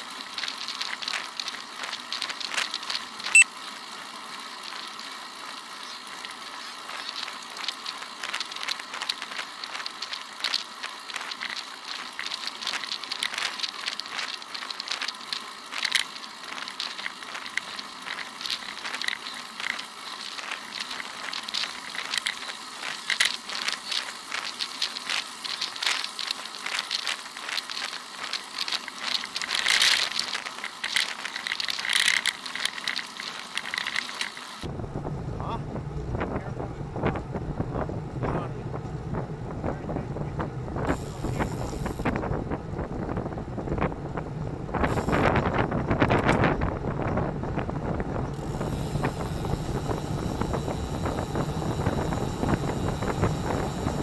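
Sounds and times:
crackling and clicking: 0:00.0 - 0:03.5, 0:04.5 - 0:34.7
tyres rolling over asphalt hiss: 0:00.0 - 0:34.7, 0:36.2 - 0:54.0.

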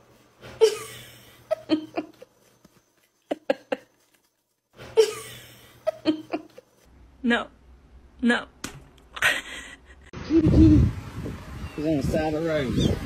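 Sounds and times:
person laughing: 0:00.6 - 0:02.4, 0:03.2 - 0:04.0, 0:04.8 - 0:06.7, 0:09.2 - 0:10.9.

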